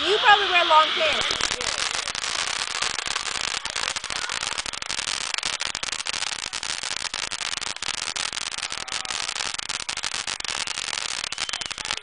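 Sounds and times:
firework fountain hissing and crackling: 0.0s - 12.0s.

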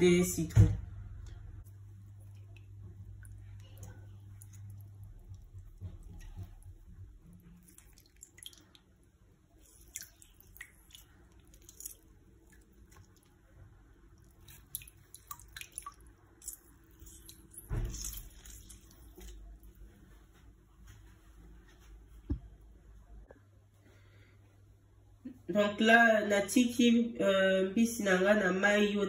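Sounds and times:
juice dripping into water: 1.2s - 19.8s.

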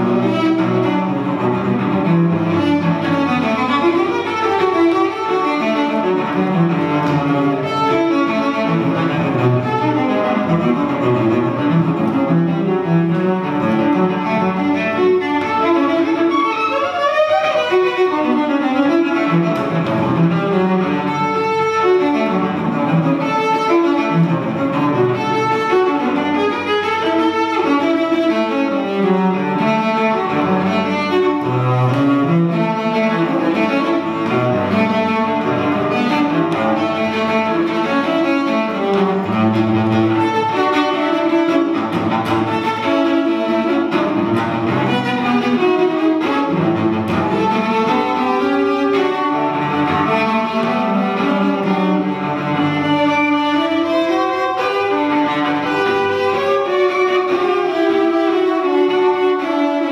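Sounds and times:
bowed cello: 0.0s - 59.9s.

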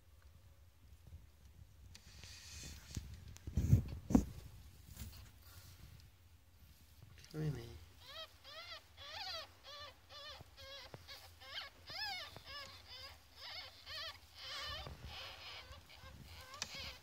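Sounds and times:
ferret kits squeaking: 8.0s - 17.0s.

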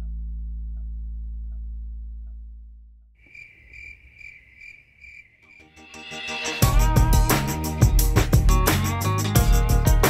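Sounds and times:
music: 0.0s - 2.7s, 5.6s - 10.0s
cricket chirping: 3.2s - 6.6s.

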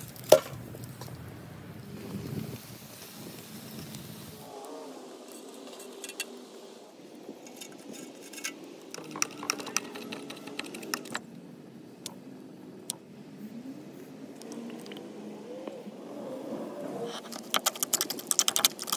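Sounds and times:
herbs clicking on metal grater: 17.3s - 18.9s.

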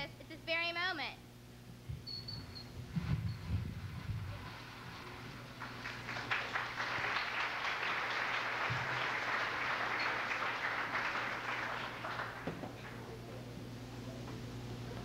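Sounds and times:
audience applauding: 5.1s - 13.6s.

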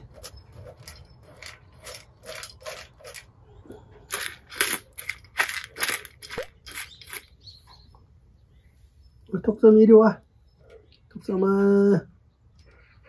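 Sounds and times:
dry kibble crunching: 0.0s - 7.6s.

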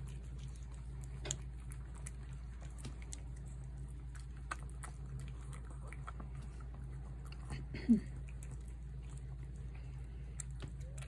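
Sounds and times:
cat chewing and lapping: 0.0s - 11.0s
steady low hum: 0.0s - 11.0s.

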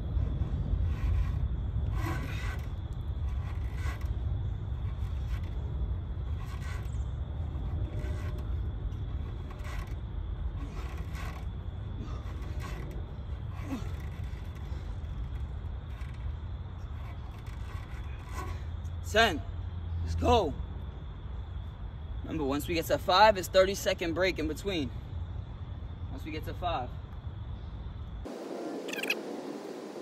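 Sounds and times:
short rasping sound: 0.8s - 4.2s.

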